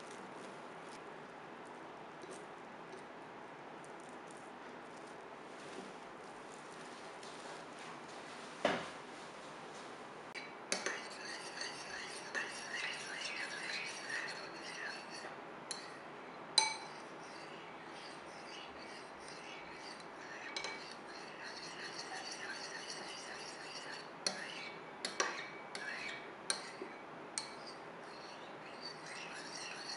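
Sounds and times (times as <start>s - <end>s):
metal spoon stirring thick jelly: 10.7s - 16.0s, 16.6s - 29.9s
spoon clinking on bowl: 16.6s - 17.0s.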